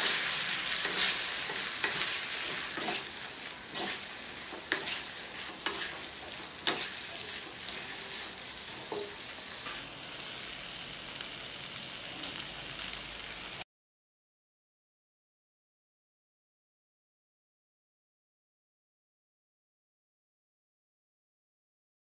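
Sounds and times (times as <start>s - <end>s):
food sizzling in a wok: 0.0s - 13.7s.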